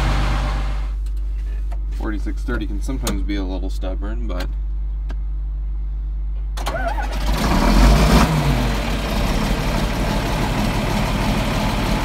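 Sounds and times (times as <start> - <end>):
diesel tractor engine starting: 0.0 - 1.0, 6.5 - 12.0.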